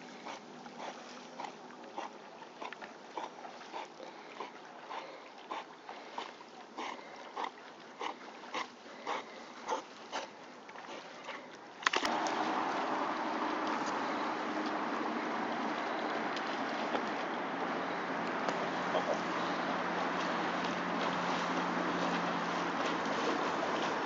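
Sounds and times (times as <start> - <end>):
dog breathing hard through nose: 0.0 - 2.1, 3.2 - 10.3.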